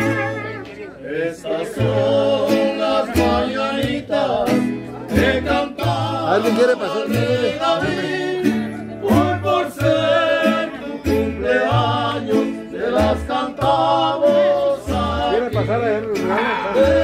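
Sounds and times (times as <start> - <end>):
strummed guitars: 0.0 - 17.0
plucked bass line: 1.7 - 17.0.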